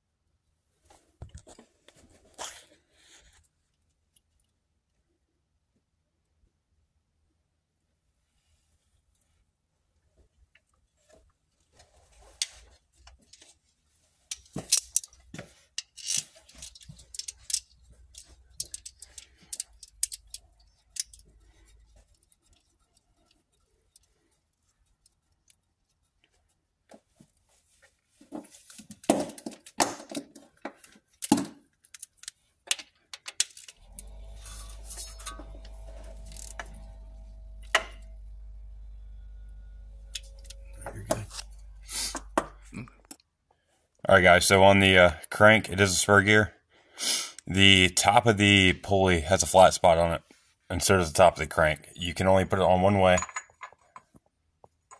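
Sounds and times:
metallic clicks and clinks: 14.3s - 21.4s, 53.1s - 54.2s
steady low hum: 33.8s - 43.0s.

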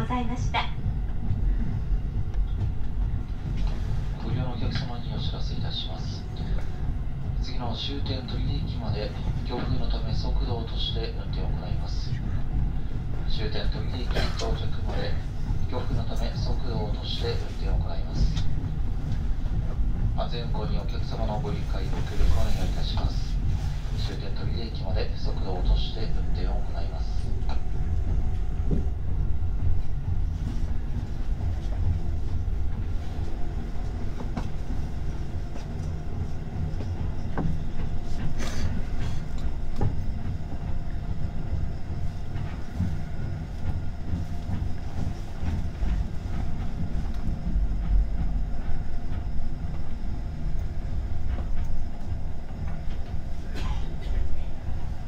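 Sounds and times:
train wheels rumbling on rail: 0.0s - 55.0s
track clicks and knocks: 22.8s - 55.0s.

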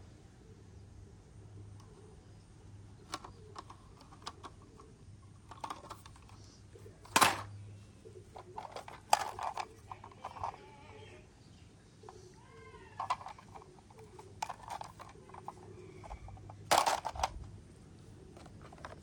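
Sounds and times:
plastic toy clicks and knocks: 3.0s - 4.6s, 5.4s - 6.4s, 7.0s - 7.5s, 8.4s - 10.6s, 12.9s - 17.4s
loud plastic clacks: 3.1s - 4.6s, 5.4s - 6.3s, 7.0s - 7.5s, 8.4s - 10.6s, 13.0s - 17.5s, 18.4s - 19.0s.

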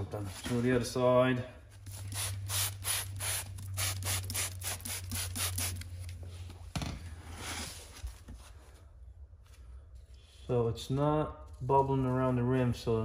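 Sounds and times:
spray bottle squirting: 1.8s - 6.0s.

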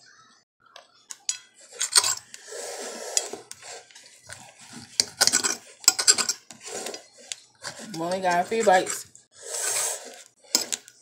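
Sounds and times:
cutlery clinking on a plate: 1.1s - 2.3s, 4.7s - 9.1s, 10.5s - 10.9s.

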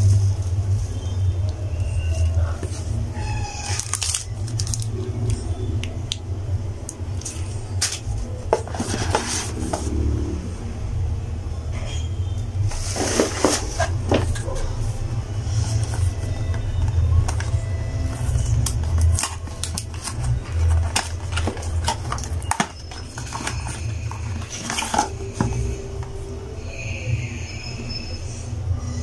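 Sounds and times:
packaging being unpacked: 1.8s - 5.4s, 7.2s - 10.0s, 12.7s - 26.2s.

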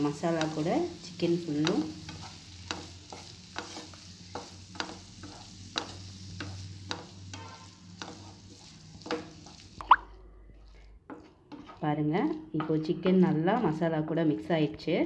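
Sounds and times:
spatula scraping frying pan: 0.0s - 9.8s, 10.7s - 13.8s
frying sizzle: 0.0s - 10.1s.

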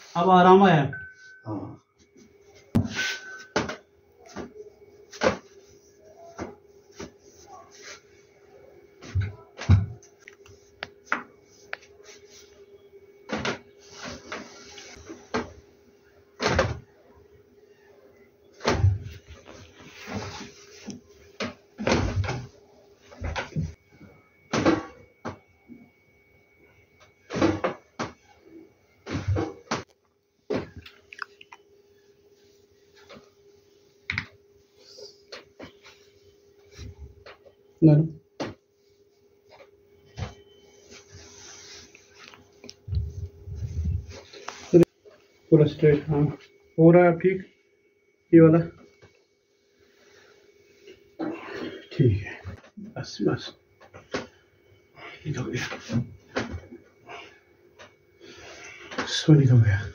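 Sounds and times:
steady low hum: 0.0s - 59.9s
cloth rustling: 40.3s - 44.9s.

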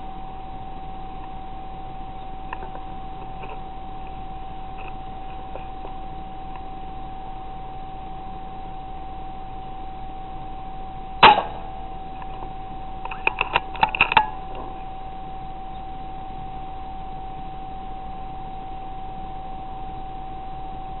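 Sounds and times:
rifle shot: 11.2s - 11.8s.

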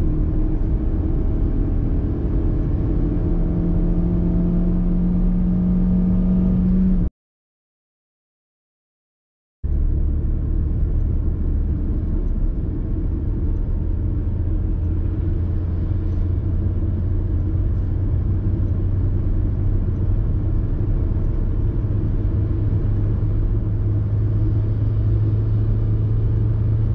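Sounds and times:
car engine accelerating: 0.0s - 7.1s, 9.7s - 26.9s.

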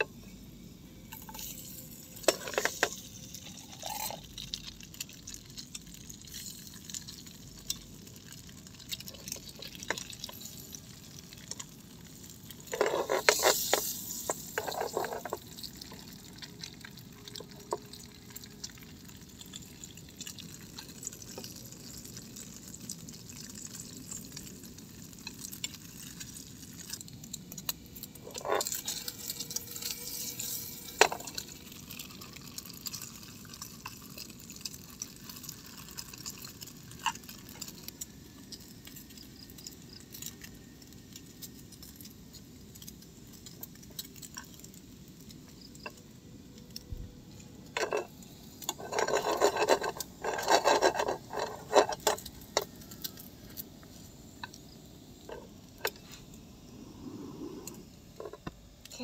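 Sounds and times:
sausages sizzling in frying pan: 0.0s - 46.5s, 47.3s - 56.8s
metal tongs scraping pan: 1.1s - 3.0s, 12.7s - 15.4s, 28.2s - 31.4s, 47.8s - 52.8s
pan rattling: 1.1s - 4.5s, 12.6s - 16.1s, 47.6s - 52.8s.

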